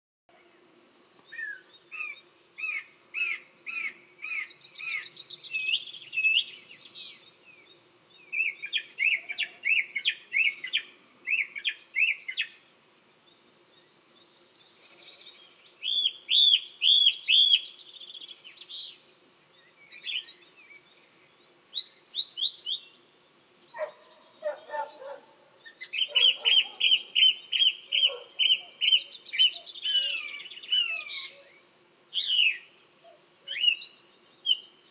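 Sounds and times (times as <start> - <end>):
song thrush singing: 0.3 - 34.9
lower bird call: 1.3 - 7.2, 23.7 - 34.9.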